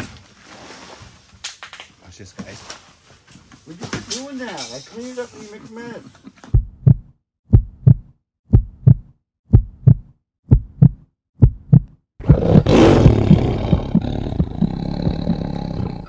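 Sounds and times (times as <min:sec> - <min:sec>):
heartbeat-like double thump: 0:06.6 - 0:14.7.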